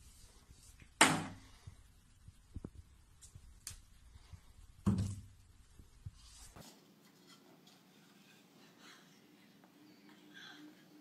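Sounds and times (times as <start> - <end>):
plastic bottle thud and clatter: 4.8 - 5.3.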